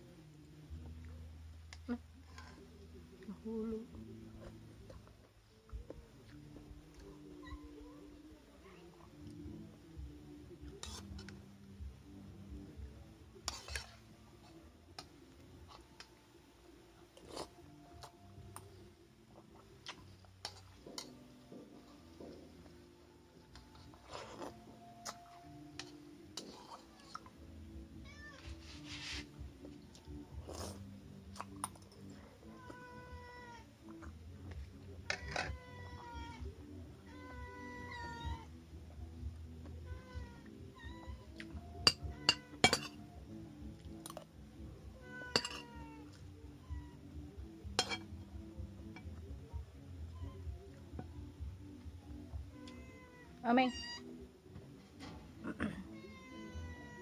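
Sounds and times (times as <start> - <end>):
eating and sipping: 13.4 - 16.2, 17.0 - 22.8, 23.4 - 27.5, 28.4 - 32.2
cat meowing: 28.0 - 28.7, 32.4 - 33.7, 35.1 - 38.5, 39.9 - 42.6, 45.0 - 47.1, 50.1 - 50.5, 52.5 - 54.2, 55.8 - 57.0
spoon clinking on bowl: 41.8 - 43.0, 45.3 - 45.7, 47.8 - 48.1.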